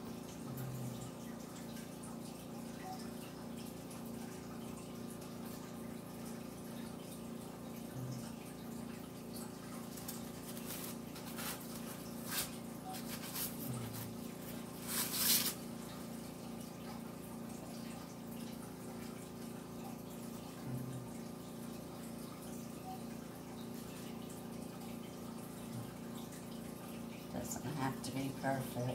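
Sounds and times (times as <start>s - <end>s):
rustles and scrapes: 10.0s - 15.7s.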